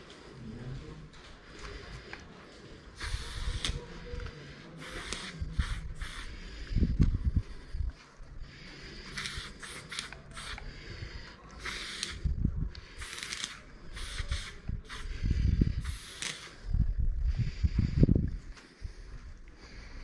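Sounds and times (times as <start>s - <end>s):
spray paint can hissing: 3.0s - 3.8s, 4.8s - 6.4s, 9.1s - 10.8s, 11.6s - 12.2s, 13.0s - 16.6s.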